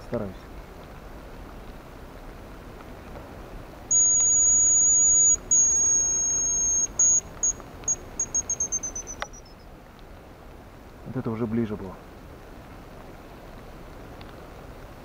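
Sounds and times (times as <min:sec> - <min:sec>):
decoy whistle: 0:03.9 - 0:09.6.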